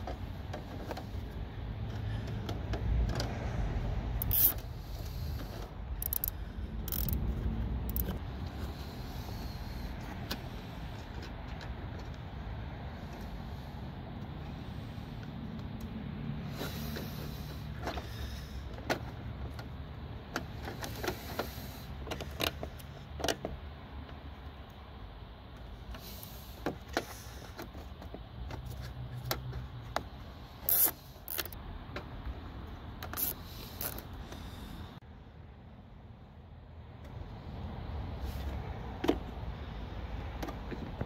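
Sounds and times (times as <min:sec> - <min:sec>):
zip ties clicking and zipping: 0:04.2 - 0:04.6, 0:06.0 - 0:07.2, 0:07.9 - 0:08.2, 0:30.6 - 0:31.6, 0:33.1 - 0:34.1.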